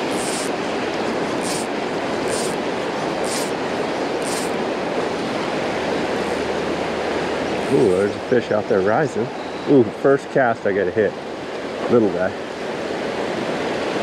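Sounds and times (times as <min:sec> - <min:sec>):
fly line swishing: 0:00.0 - 0:00.6, 0:01.4 - 0:02.6, 0:03.2 - 0:03.6, 0:04.2 - 0:04.6.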